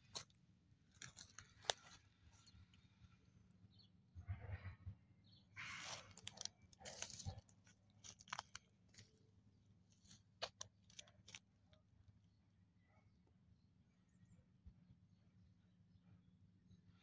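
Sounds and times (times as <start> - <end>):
small clicks and crackles: 0.0 - 3.0, 5.6 - 9.2, 9.9 - 11.9
rustling in dry leaves: 0.9 - 2.5, 5.6 - 9.1.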